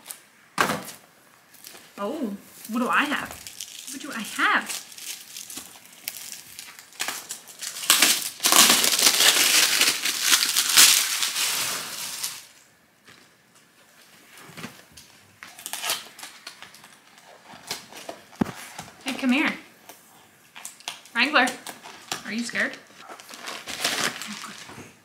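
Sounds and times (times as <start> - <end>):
packaging crackling: 1.5 - 12.6, 15.4 - 18.4, 23.0 - 24.9.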